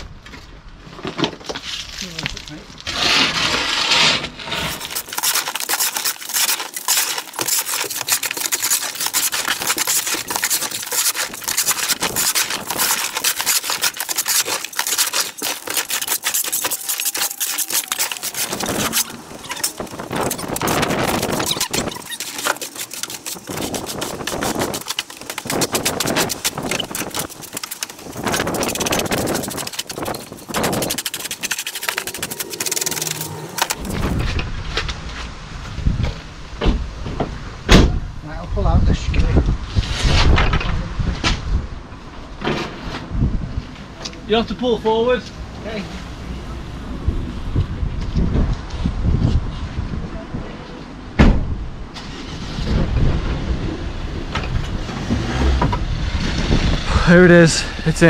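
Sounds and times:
stones clattering together: 0:04.6 - 0:34.2.

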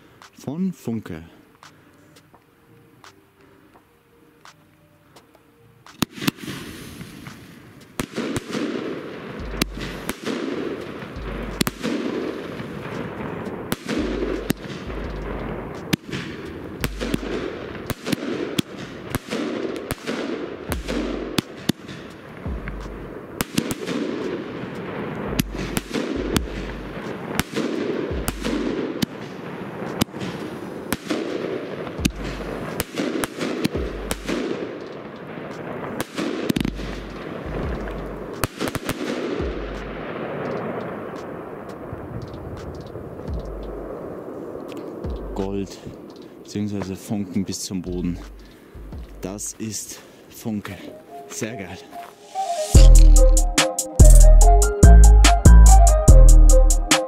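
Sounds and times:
hiss of burning sparks: 0:05.9 - 0:08.8
firework launch bangs and bursts: 0:05.9 - 0:45.6.

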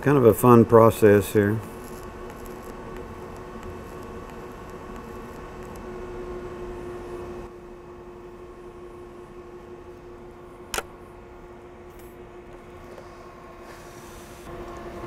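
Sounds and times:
faint hum: 0:00.0 - 0:15.0
welding arc hissing: 0:00.2 - 0:07.0.

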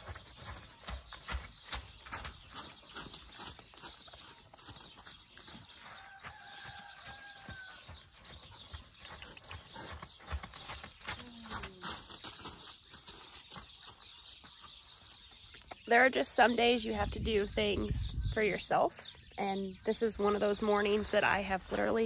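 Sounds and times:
horse hooves on soft dirt: 0:00.0 - 0:22.0.

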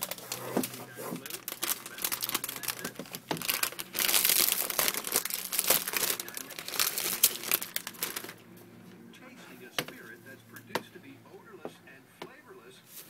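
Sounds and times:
plastic wrap crinkling: 0:00.0 - 0:08.4.

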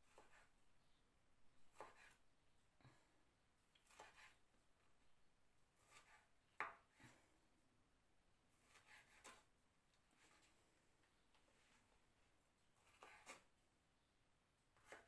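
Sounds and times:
knife cutting on wooden board: 0:00.0 - 0:00.6, 0:01.7 - 0:02.2, 0:03.8 - 0:04.4, 0:05.8 - 0:07.2, 0:08.5 - 0:09.5, 0:12.8 - 0:13.5, 0:14.8 - 0:15.0.

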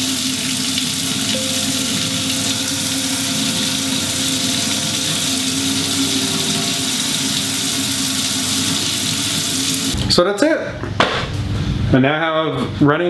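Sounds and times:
water running into metal sink: 0:00.0 - 0:10.0.

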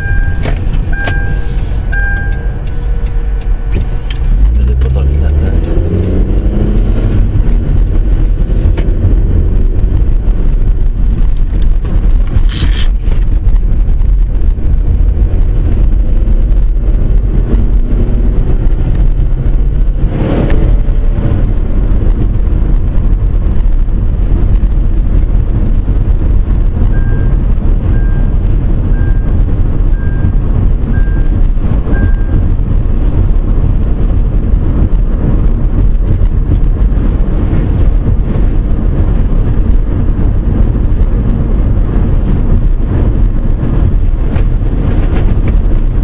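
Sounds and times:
short high beeps: 0:00.0 - 0:02.7
road and engine rumble in car: 0:00.0 - 0:46.0.

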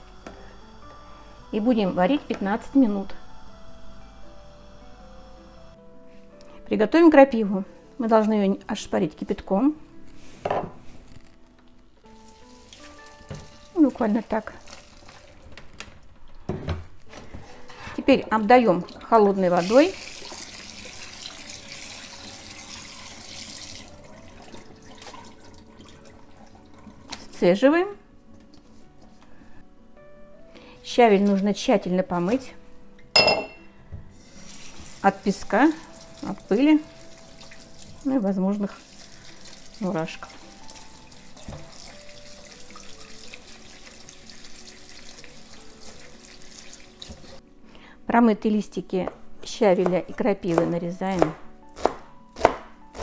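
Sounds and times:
tap water running into metal colander: 0:12.1 - 0:15.8, 0:18.1 - 0:27.4, 0:34.1 - 0:47.4.

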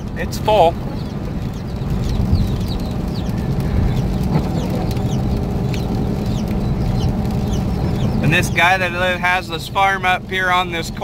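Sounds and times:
vehicle engine and tyres rumbling: 0:00.0 - 0:11.0
chickens peeping: 0:00.4 - 0:09.2.

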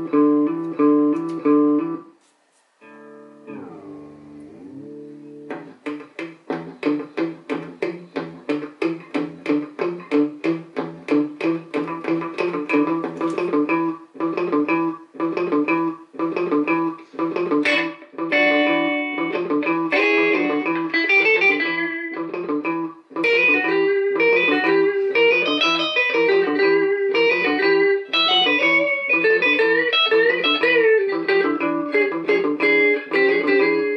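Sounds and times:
electric guitar with delay: 0:00.0 - 0:02.1, 0:02.8 - 0:33.9.

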